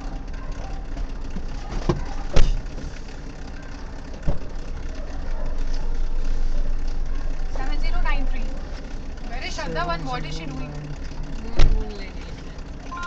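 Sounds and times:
car engine idling: 0:00.0 - 0:13.0
sharp knocks: 0:11.5 - 0:11.9.

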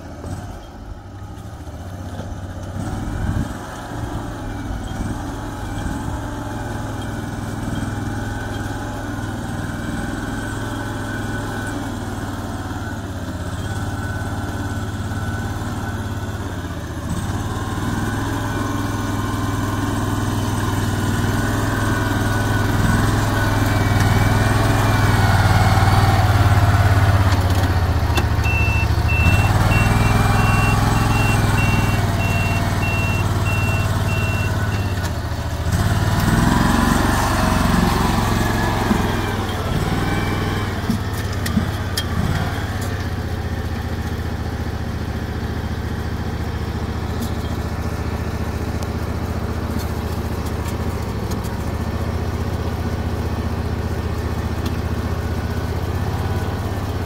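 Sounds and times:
engine running: 0:00.0 - 0:57.0
short high beeps: 0:28.4 - 0:35.0.

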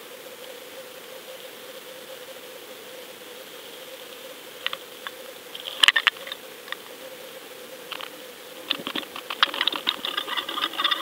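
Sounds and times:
underwater clicks and rattles: 0:08.7 - 0:11.0.

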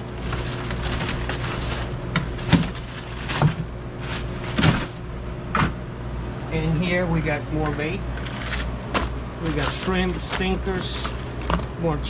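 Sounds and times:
plastic crinkling: 0:00.0 - 0:04.9, 0:08.2 - 0:11.8
freezer hum: 0:00.0 - 0:12.0
frozen packs knocking: 0:00.1 - 0:05.0, 0:08.2 - 0:11.8.

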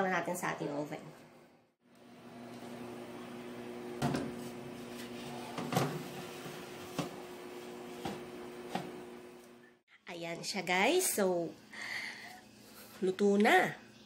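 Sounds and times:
oven fan humming: 0:01.9 - 0:09.8.

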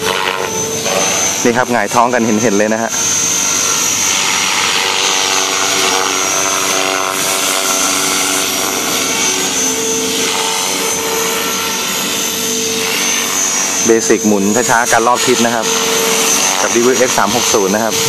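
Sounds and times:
model helicopter motor whine: 0:00.0 - 0:18.0.

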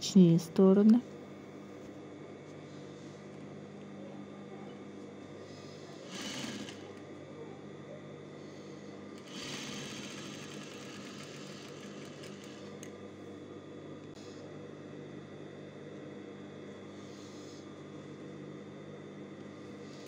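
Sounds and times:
steady low hum: 0:00.0 - 0:20.0
sewing machine stitching: 0:06.1 - 0:07.0, 0:09.2 - 0:12.9.

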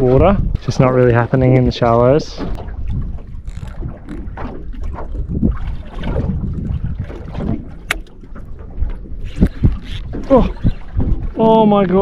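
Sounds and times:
water lapping against boat hull: 0:00.0 - 0:12.0
wind rumbling on microphone: 0:00.0 - 0:12.0
sharp click: 0:07.8 - 0:08.2.

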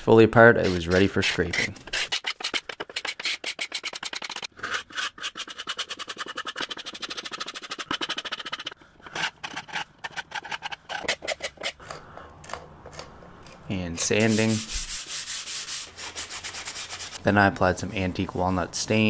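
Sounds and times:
paint scraper scraping wood: 0:00.4 - 0:11.8, 0:14.0 - 0:17.2.

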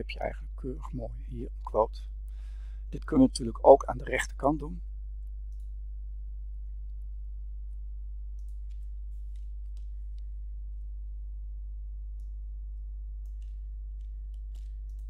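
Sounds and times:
steady low hum: 0:00.0 - 0:15.0
faint clicks: 0:05.2 - 0:05.7, 0:08.3 - 0:10.3, 0:13.2 - 0:15.0.

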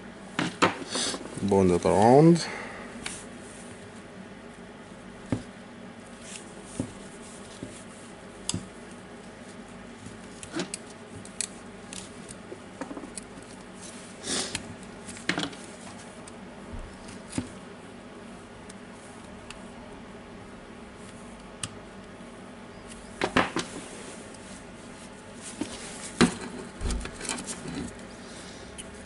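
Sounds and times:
faint steady hum: 0:00.0 - 0:29.0
rustling scrape: 0:23.6 - 0:28.1.

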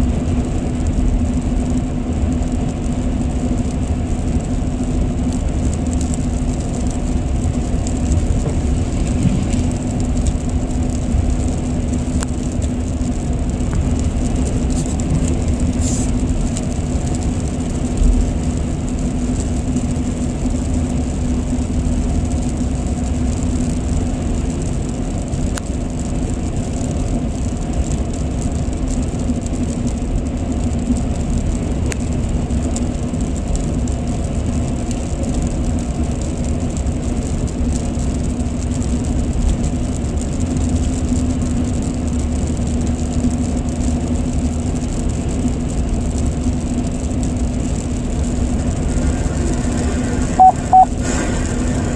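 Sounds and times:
road and tyre noise in car: 0:00.0 - 0:51.9
low hum: 0:48.8 - 0:51.8.

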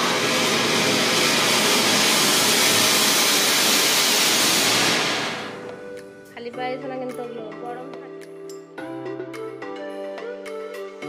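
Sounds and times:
firework fountain hissing: 0:00.0 - 0:06.0.

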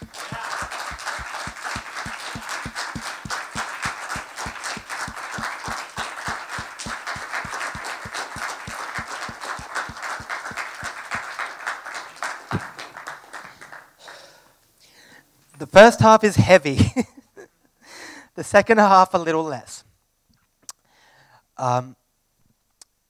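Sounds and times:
close claps thumping through microphone: 0:00.0 - 0:14.2
audience applauding: 0:00.0 - 0:14.3.

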